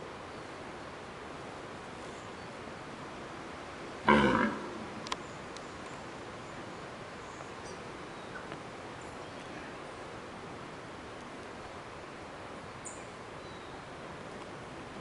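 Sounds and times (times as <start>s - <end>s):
deer stag roaring: 4.1s - 4.8s.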